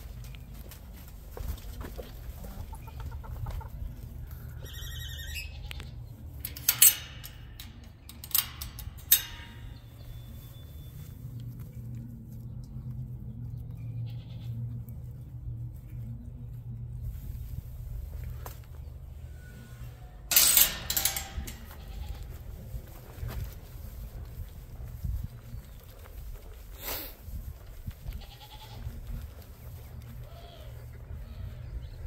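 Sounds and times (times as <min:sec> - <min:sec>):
high-pitched animal call: 0:04.4 - 0:05.8
metal gate latch clanking: 0:05.7 - 0:10.2, 0:20.2 - 0:22.3.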